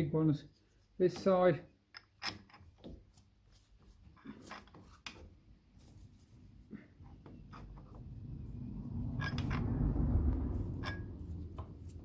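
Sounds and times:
metal parts clicking and knocking: 0:01.9 - 0:02.9, 0:09.2 - 0:09.7, 0:10.7 - 0:11.7.

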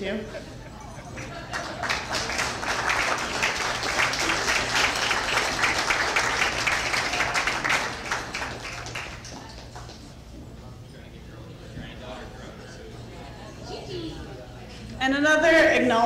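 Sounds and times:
roomful of people applauding: 0:01.1 - 0:10.4.

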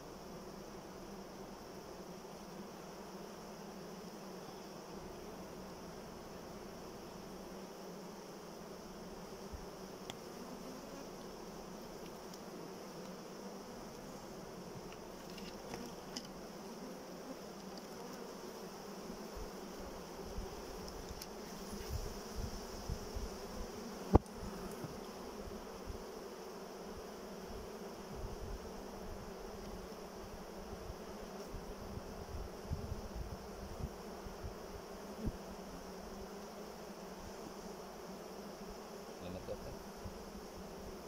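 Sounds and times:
honey bees humming: 0:00.0 - 0:41.0
bee smoker puffs: 0:00.2 - 0:41.0.

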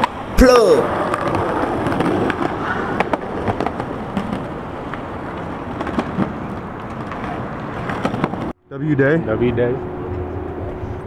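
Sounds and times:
skateboard wheels rolling on concrete: 0:00.0 - 0:09.6.

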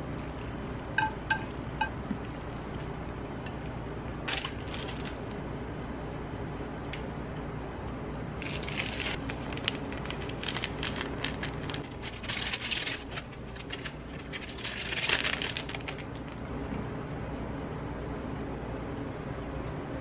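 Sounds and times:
plastic sachet crinkling: 0:04.3 - 0:05.2, 0:08.4 - 0:16.4.

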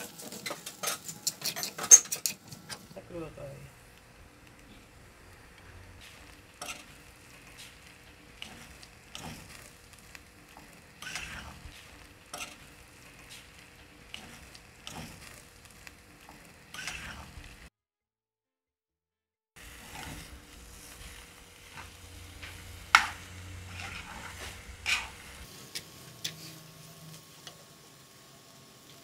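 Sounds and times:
food sizzling in a pan: 0:04.3 - 0:17.7, 0:19.6 - 0:29.0
spoon scraping and knocking pan: 0:21.7 - 0:26.4.

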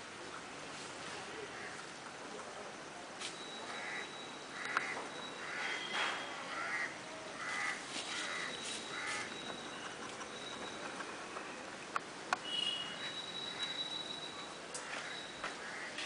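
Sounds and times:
bird cawing: 0:03.7 - 0:09.6, 0:14.8 - 0:16.0.

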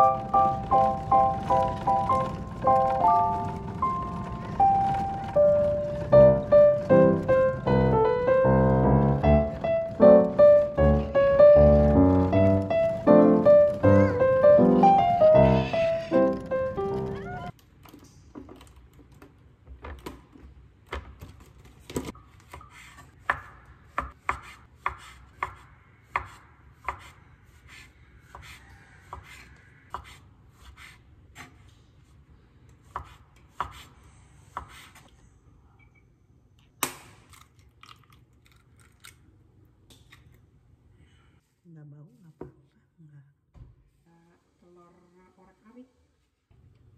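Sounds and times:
knife chopping on wooden board: 0:22.5 - 0:27.2
egg cracking: 0:36.8 - 0:40.4.

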